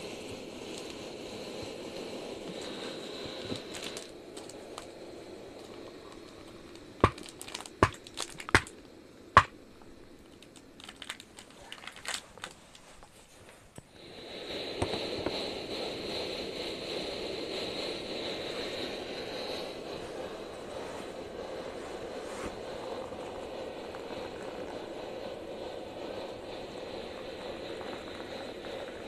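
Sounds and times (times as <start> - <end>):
hot water pouring into mugs: 0.0 - 8.7, 22.5 - 29.0
steady rushing noise: 13.9 - 29.0.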